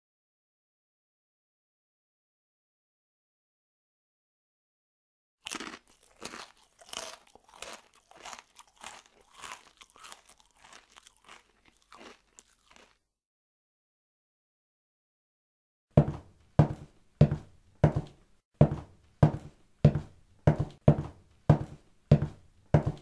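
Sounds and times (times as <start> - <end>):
crunching hard candy: 5.4 - 13.1.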